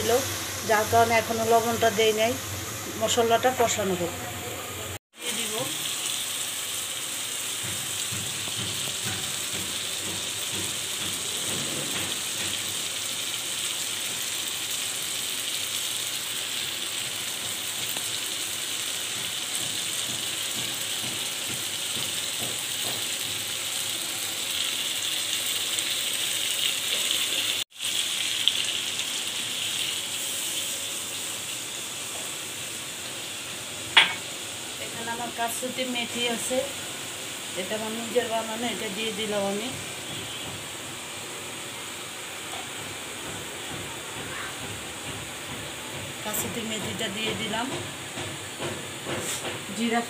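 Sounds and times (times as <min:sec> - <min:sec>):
fish sizzling in a frying pan: 0:00.0 - 0:04.1, 0:05.1 - 0:50.0.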